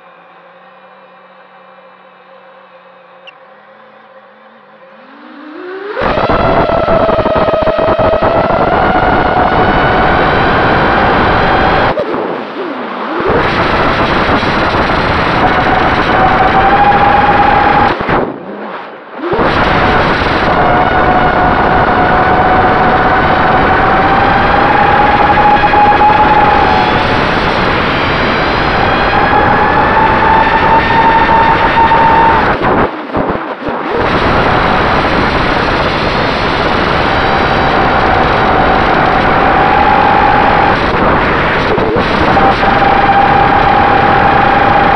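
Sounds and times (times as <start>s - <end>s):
drone motor whine: 0.0s - 44.9s
quadcopter motors whining: 3.1s - 18.6s
wind rushing over microphone: 5.8s - 44.9s.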